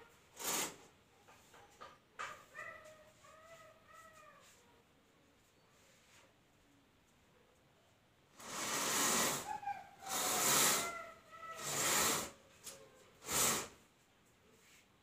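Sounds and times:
net runners sliding along rail: 8.4 - 11.0, 11.6 - 12.4, 13.2 - 13.8.

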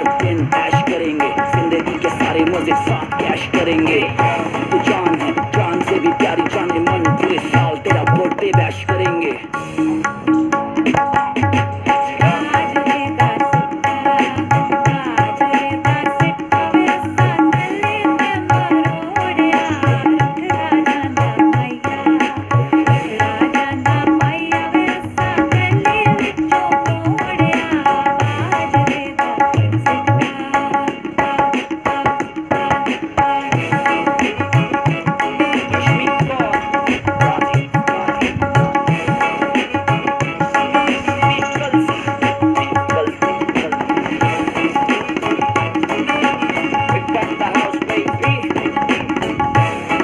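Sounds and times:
backing music: 0.0 - 50.0
tabla playing: 0.0 - 50.0.

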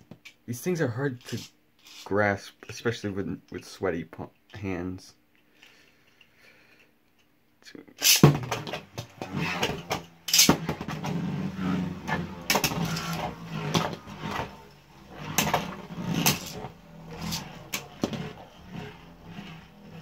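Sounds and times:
spinning tops whirring: 1.2 - 2.2, 8.0 - 20.0
spinning tops clacking together: 8.0 - 8.4, 10.3 - 10.7.

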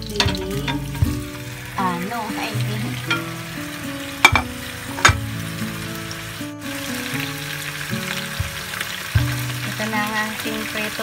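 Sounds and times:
background music with held notes: 0.0 - 11.0
fish sizzling in a frying pan: 0.0 - 11.0
plate clinking against pan: 3.1 - 3.3, 4.2 - 5.2.

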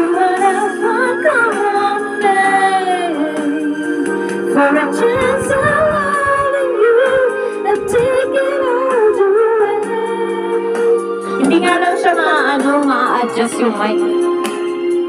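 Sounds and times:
song through small speaker: 0.0 - 15.0.

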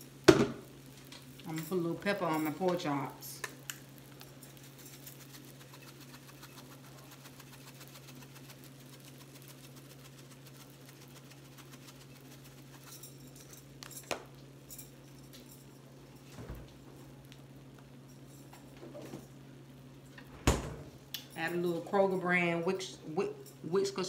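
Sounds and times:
meat sizzling on a grill: 0.0 - 13.9.

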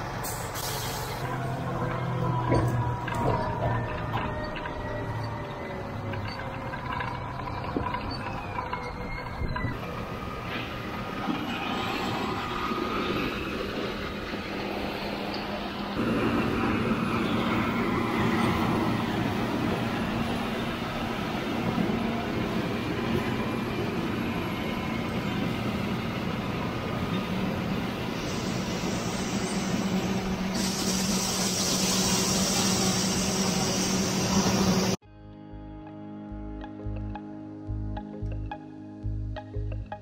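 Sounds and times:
tractor droning: 0.0 - 35.0
combine harvester hum: 12.8 - 35.0.

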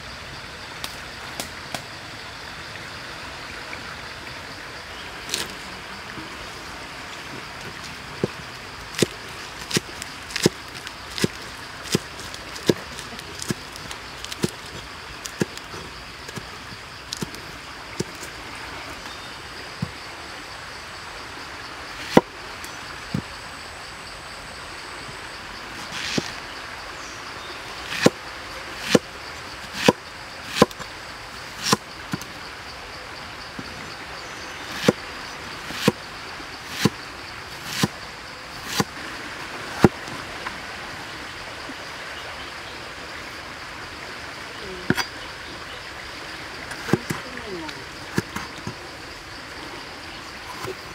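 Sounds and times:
steady background hiss: 0.0 - 50.9
knife chopping on wooden board: 29.8 - 30.8, 31.6 - 31.8, 34.8 - 35.0, 35.7 - 36.0, 36.7 - 36.9, 37.6 - 37.9.

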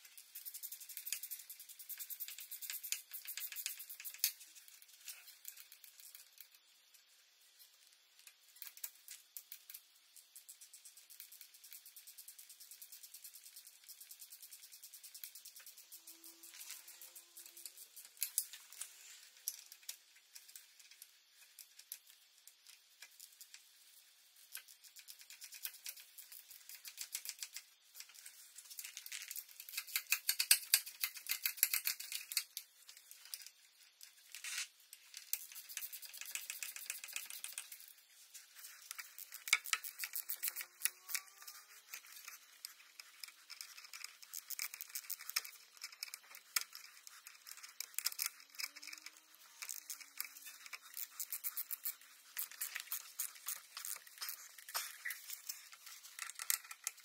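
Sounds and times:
hand tools clicking and rattling: 28.7 - 32.6, 38.8 - 57.0.

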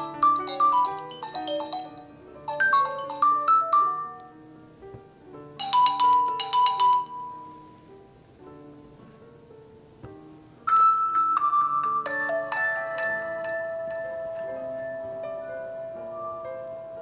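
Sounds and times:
phone ringtone melodies: 0.0 - 4.4, 5.6 - 7.8, 10.7 - 17.0.

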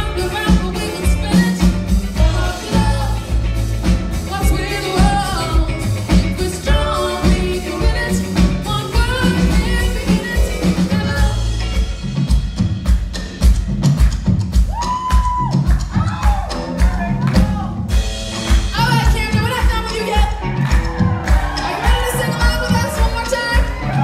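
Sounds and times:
woman singing: 0.0 - 3.6, 4.2 - 11.8, 18.7 - 20.4, 21.6 - 24.0
live band playing: 0.0 - 24.0.

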